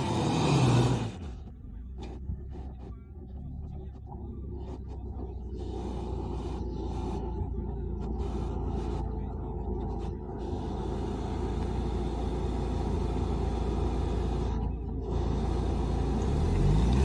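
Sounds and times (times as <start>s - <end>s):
suv engine rumbling under load: 0.0s - 17.0s.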